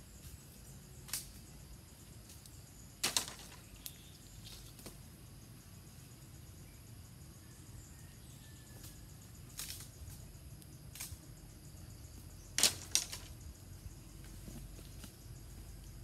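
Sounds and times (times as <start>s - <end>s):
dry bamboo cracking: 1.1s - 1.4s, 2.3s - 5.0s, 9.5s - 10.0s, 10.9s - 11.2s, 12.6s - 13.4s.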